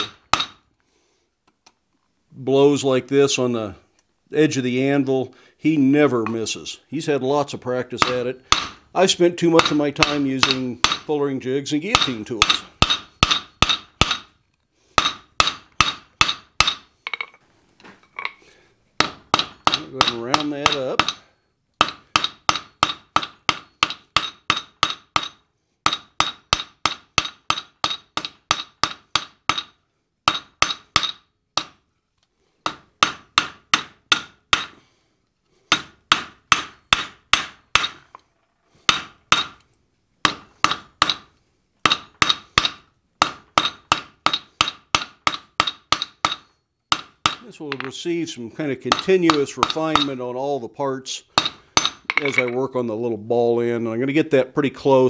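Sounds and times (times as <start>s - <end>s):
hammer striking hot metal on anvil: 0.0s - 0.6s, 8.0s - 8.8s, 9.6s - 11.1s, 11.9s - 14.3s, 15.0s - 16.9s, 19.0s - 21.2s, 21.8s - 29.7s, 30.3s - 31.8s, 32.7s - 34.8s, 41.8s - 47.8s.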